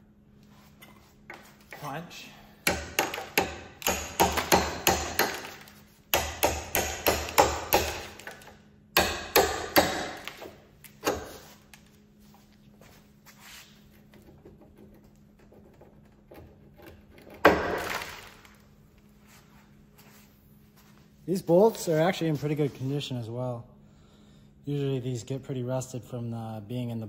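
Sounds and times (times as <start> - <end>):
hammer striking steel punch: 2.6 - 5.5, 6.1 - 8.3, 9.0 - 10.4.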